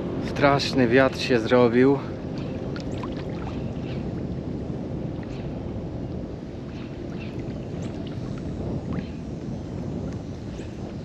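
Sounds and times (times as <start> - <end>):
wind blowing across microphone: 0.0 - 11.0
water splashing against hull: 2.1 - 5.6, 6.3 - 11.0.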